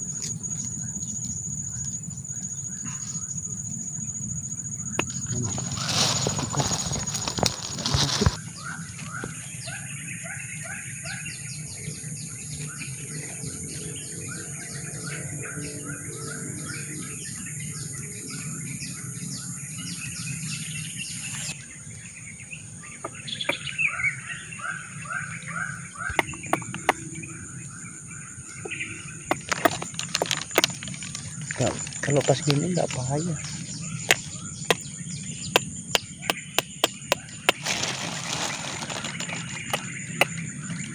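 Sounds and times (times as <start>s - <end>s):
birds chirping: 0.0s - 40.9s
crackling and rustling in grass: 5.0s - 9.5s, 29.3s - 34.8s, 37.5s - 40.9s.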